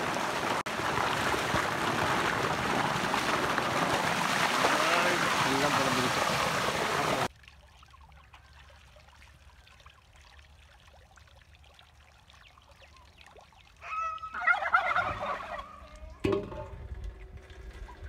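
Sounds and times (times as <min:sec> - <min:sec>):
turkey gobbling: 0:13.8 - 0:16.2
metal bowl knock: 0:16.2 - 0:16.7.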